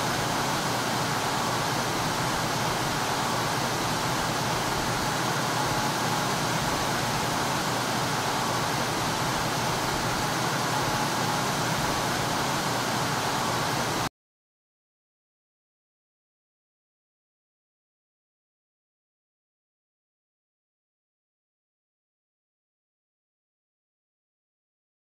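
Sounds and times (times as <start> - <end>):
industrial room tone: 0.0 - 14.1.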